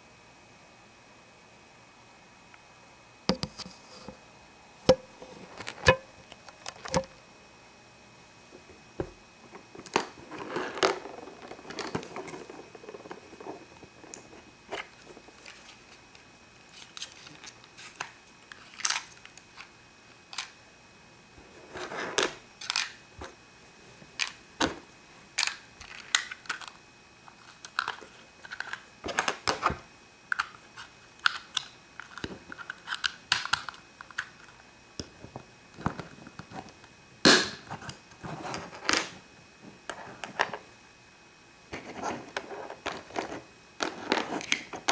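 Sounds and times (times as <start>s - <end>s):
plastic toys clicking and rattling: 9.8s - 14.2s, 16.8s - 19.7s, 22.2s - 23.0s, 25.4s - 29.5s, 30.3s - 34.6s.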